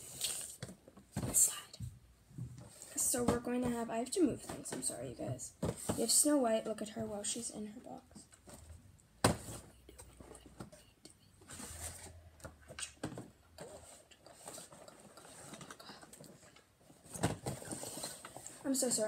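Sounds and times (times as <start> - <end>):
soft taps and rustling: 0.6 - 7.1.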